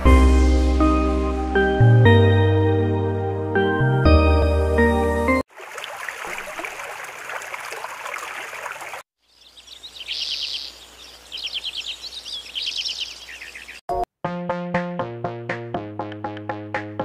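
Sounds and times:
water splashing onto leaf: 5.5 - 9.0
bird trilling: 9.3 - 13.8.

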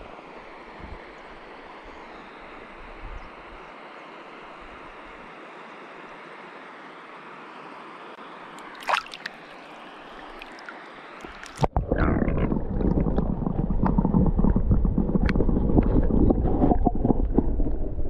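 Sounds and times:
fast-flowing river hissing: 0.0 - 11.2
water rumbling and sloshing: 8.6 - 18.0.

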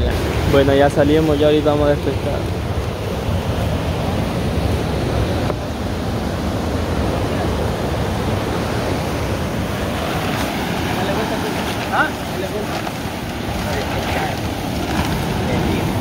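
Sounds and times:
sea water rushing: 0.0 - 16.0.

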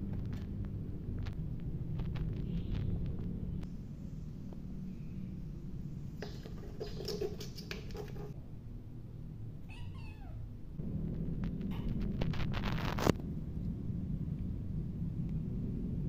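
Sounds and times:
kitten meowing: 9.6 - 10.4.

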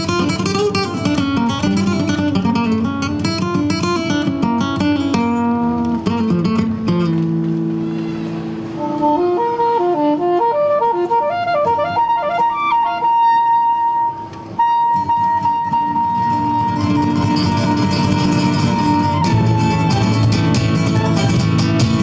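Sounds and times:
long held high note: 7.8 - 17.8.

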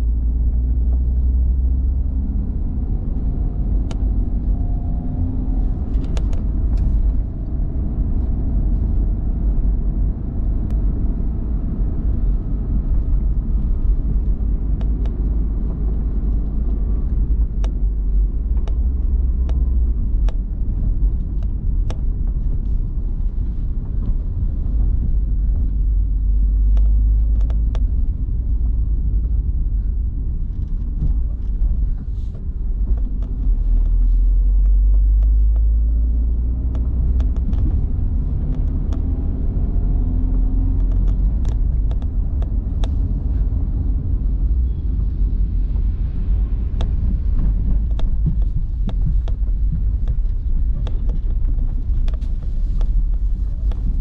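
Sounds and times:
car road and engine rumble: 0.0 - 54.0.

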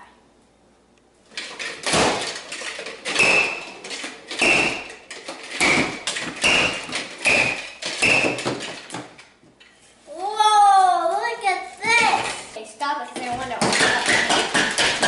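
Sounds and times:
toy hammer striking chocolate: 3.1 - 4.9, 5.6 - 8.6, 13.6 - 15.0.

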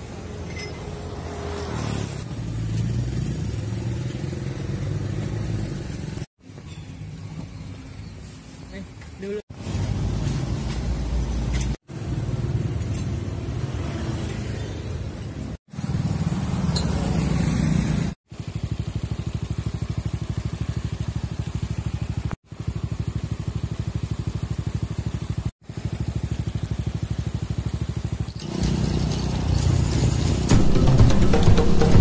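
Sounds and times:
scooters passing: 0.9 - 6.3, 12.0 - 21.1, 25.1 - 30.5
scooter engine running: 11.9 - 32.0.

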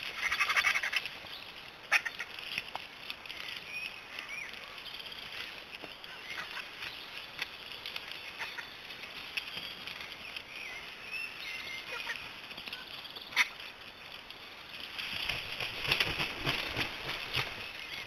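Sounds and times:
vultures calling harshly: 0.0 - 2.6, 6.1 - 6.9, 8.1 - 9.1, 11.3 - 12.5, 13.2 - 13.8.

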